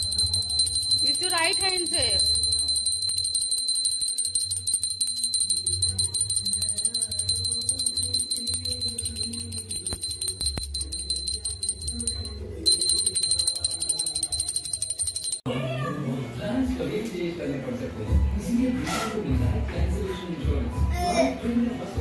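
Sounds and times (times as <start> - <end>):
hand bell ringing rapidly: 0.0 - 15.4.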